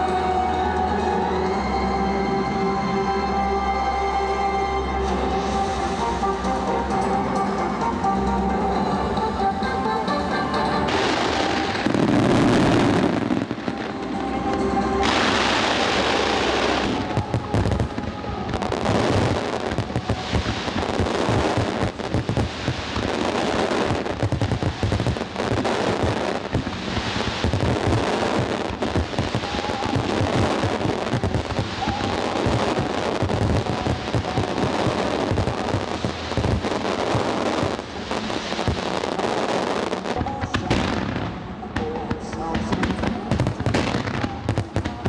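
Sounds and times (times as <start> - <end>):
fireworks bursting and crackling: 10.8 - 45.0.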